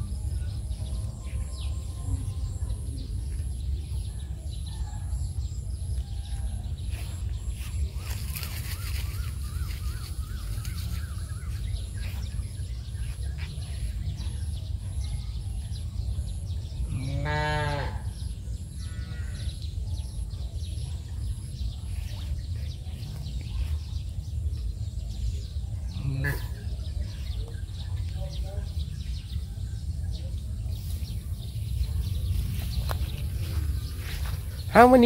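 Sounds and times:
cow mooing: 16.9s - 18.1s
low background rumble: 18.0s - 35.0s.

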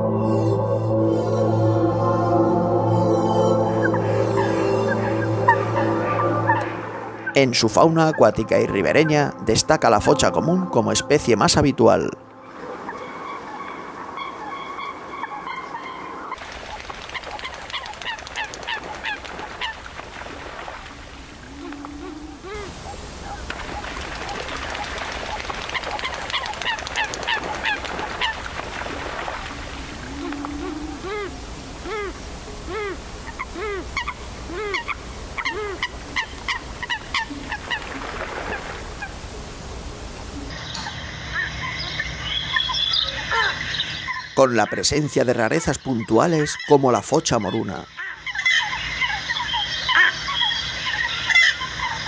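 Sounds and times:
coots calling: 3.7s - 9.5s, 12.4s - 39.3s, 40.3s - 52.0s
water splashing: 3.9s - 7.6s, 12.4s - 40.6s.

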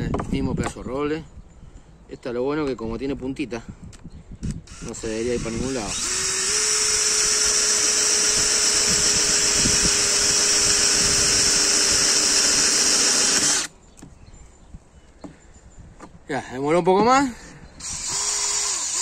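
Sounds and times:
cordless drill boring wood: 4.7s - 13.7s, 17.8s - 19.0s.

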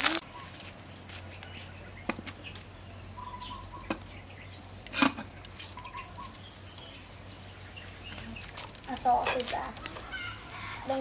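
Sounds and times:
birds chirping faintly: 0.2s - 11.0s.

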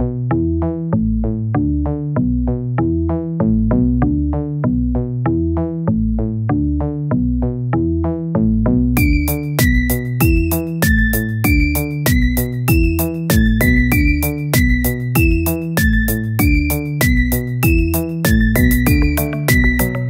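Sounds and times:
electronic music: 9.0s - 20.0s.

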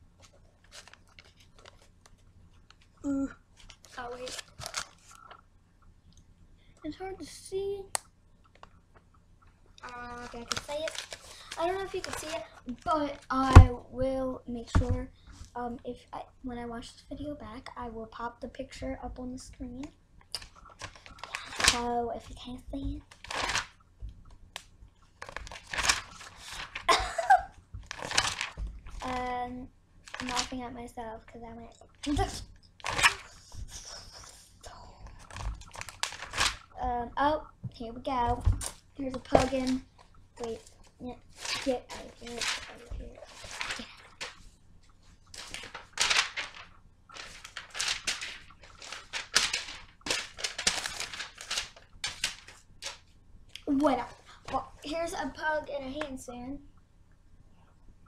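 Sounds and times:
paper rustling and crinkling: 0.2s - 5.4s, 9.9s - 13.8s, 20.4s - 23.8s, 25.1s - 29.3s, 30.1s - 30.6s, 32.0s - 34.5s, 35.1s - 36.8s, 38.4s - 54.8s.

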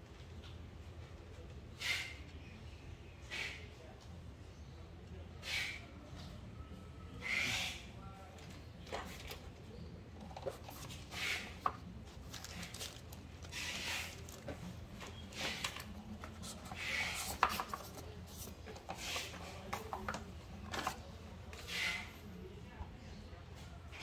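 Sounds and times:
paper and cardboard rustling: 10.2s - 20.0s.

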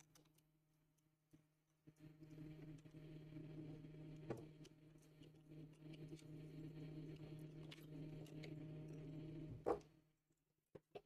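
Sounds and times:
faint steady hum: 0.0s - 10.8s.

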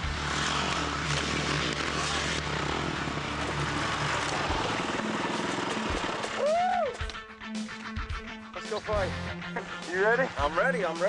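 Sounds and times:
dirt bike engines: 0.0s - 11.0s
rising then falling tone: 0.1s - 7.2s.

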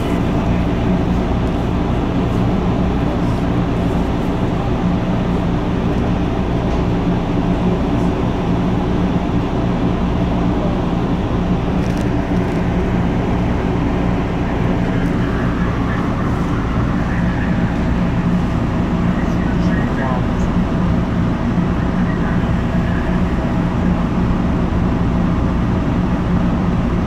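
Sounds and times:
subway wheels rumbling on rail: 0.0s - 27.0s.

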